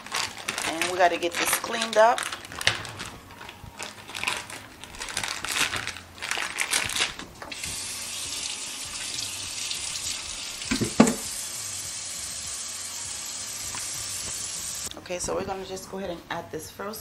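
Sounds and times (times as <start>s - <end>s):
plastic packaging crinkling: 0.0s - 7.8s
kitchen faucet running: 7.5s - 14.9s
dull knock: 10.7s - 11.3s.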